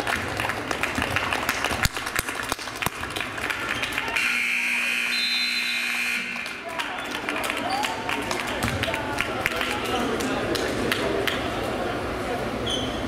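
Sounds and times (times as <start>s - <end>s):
crowd noise: 0.0s - 13.0s
scoreboard horn buzzing: 4.2s - 6.6s.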